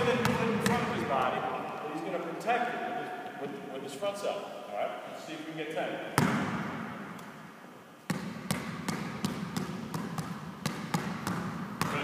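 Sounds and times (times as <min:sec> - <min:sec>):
basketball bouncing on court: 0:00.0 - 0:01.1, 0:06.2 - 0:06.9, 0:08.1 - 0:12.0.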